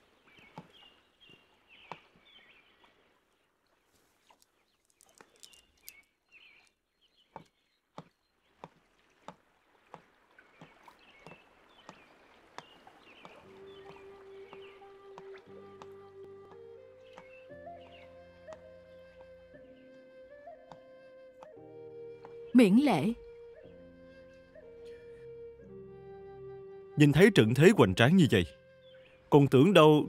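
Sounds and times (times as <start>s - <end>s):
birds chirping: 4.5s - 8.6s, 10.5s - 20.1s, 27.0s - 30.0s
soft music: 13.2s - 30.0s.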